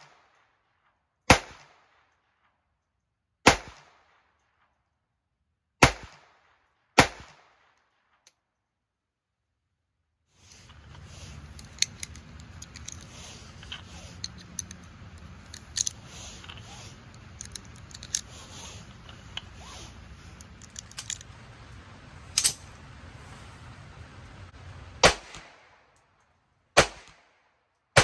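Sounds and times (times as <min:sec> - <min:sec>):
sharp crack: 0:01.3 - 0:02.0, 0:03.4 - 0:04.2, 0:05.8 - 0:07.7, 0:25.0 - 0:26.0, 0:26.8 - 0:27.4
metallic cartridge clicks: 0:10.7 - 0:19.5, 0:20.3 - 0:21.3, 0:22.4 - 0:22.6.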